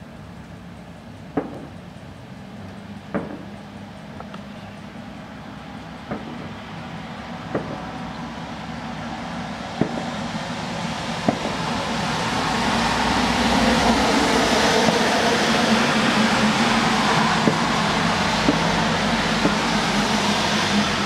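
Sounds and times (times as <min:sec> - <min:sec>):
rushing crackle of fireworks: 0:01.1 - 0:21.0
firework shells bursting: 0:03.0 - 0:04.5, 0:06.0 - 0:06.6, 0:07.4 - 0:08.1, 0:09.7 - 0:10.4, 0:11.2 - 0:12.0, 0:16.6 - 0:20.0.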